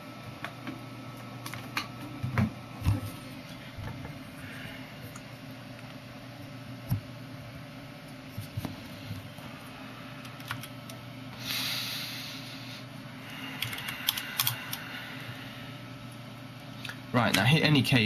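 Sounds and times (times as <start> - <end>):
computer humming: 0.0 - 18.0
hiss: 11.4 - 12.8
computer clicks: 13.6 - 14.6.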